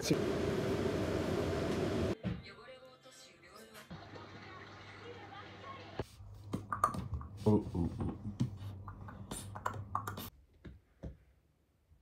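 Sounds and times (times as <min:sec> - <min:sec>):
rapid irregular clicks and taps: 0:08.7 - 0:11.1.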